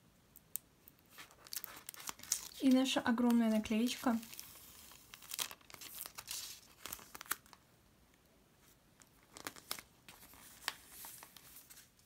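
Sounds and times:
paper rustle: 1.1s - 7.6s, 8.6s - 12.0s
paper sticker crinkling: 1.1s - 7.6s, 9.0s - 12.0s.

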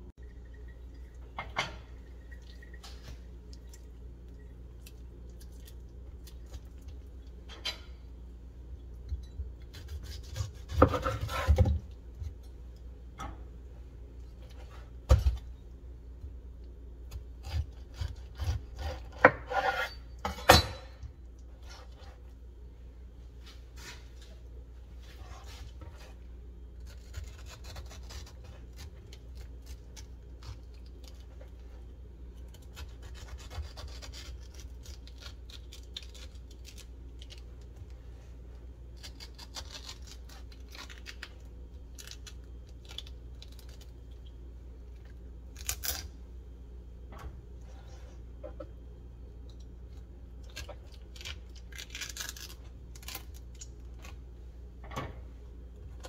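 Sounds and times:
knife slicing fruit: 9.7s - 11.9s, 32.5s - 36.7s.

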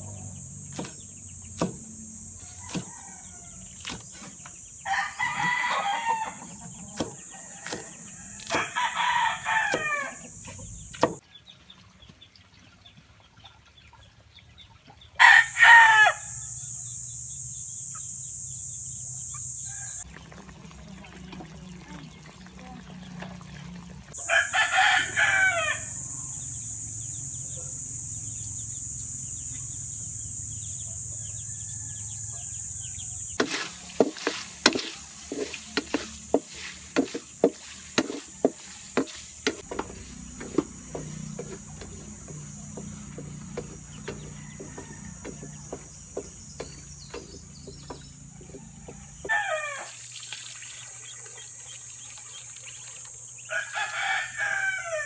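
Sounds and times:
high-pitched buzz: 0.0s - 2.9s, 15.4s - 20.0s, 24.1s - 49.3s
rooster crowing: 2.3s - 3.8s, 4.8s - 11.2s, 15.2s - 16.8s, 19.5s - 20.1s, 24.2s - 26.5s, 30.8s - 36.8s, 37.9s - 50.0s, 53.5s - 55.0s
metal spatula scraping a wok: 33.4s - 42.1s
meat frying: 33.4s - 46.0s.

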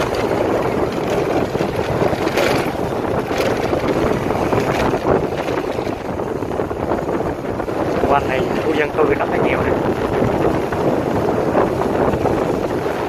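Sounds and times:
small motorbike engine running: 0.0s - 8.7s
wind rushing over microphone: 0.0s - 13.0s.

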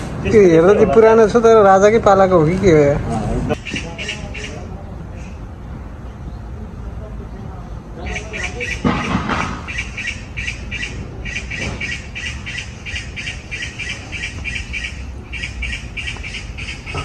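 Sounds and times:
rapid high-pitched chirping: 9.7s - 17.0s.

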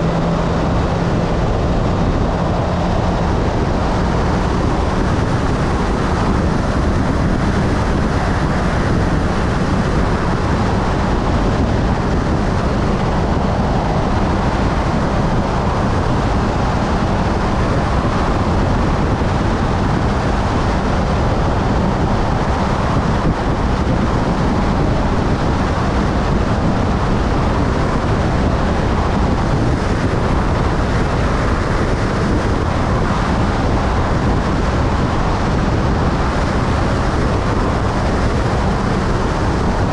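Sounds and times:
motorcycle engine drone: 0.0s - 39.9s
wind rushing over microphone: 0.0s - 39.9s.

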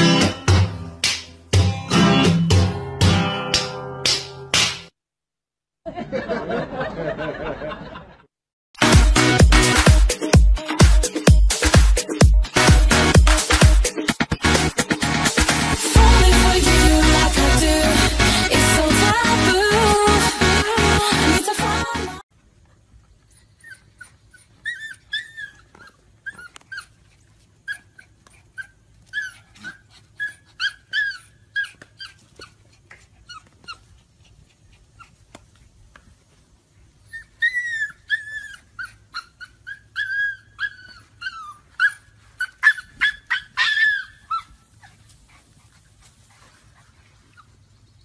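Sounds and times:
puppies whining and yipping: 23.2s - 35.2s, 36.9s - 47.8s.

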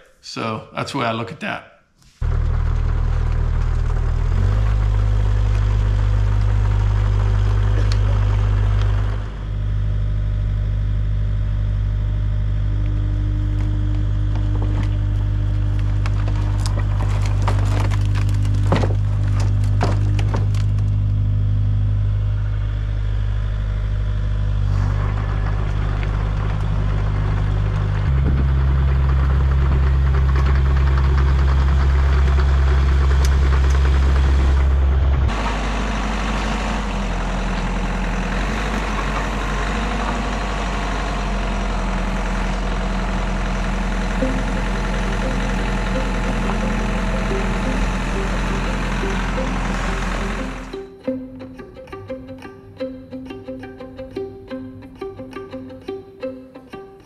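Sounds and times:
excavator diesel engine running: 2.2s - 57.0s
wood slabs cracking and clattering: 13.6s - 21.3s.

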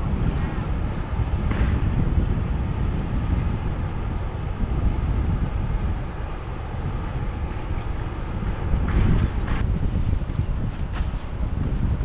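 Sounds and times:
boat engines rumbling: 0.0s - 12.0s
wind buffeting microphone: 0.0s - 12.0s.

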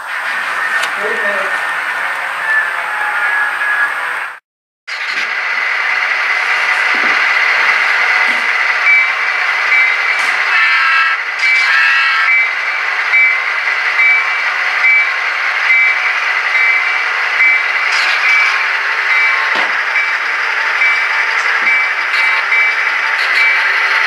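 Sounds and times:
short high electronic beeps: 8.9s - 12.6s.

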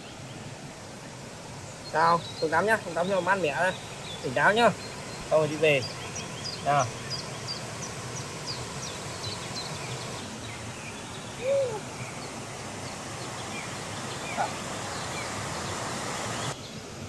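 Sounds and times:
waterfall rushing: 0.0s - 17.0s
rising and falling call: 10.9s - 16.6s.

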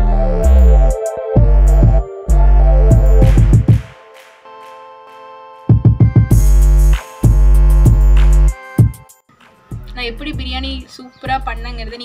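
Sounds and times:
heavy bass beats: 0.0s - 4.6s, 5.7s - 9.1s.

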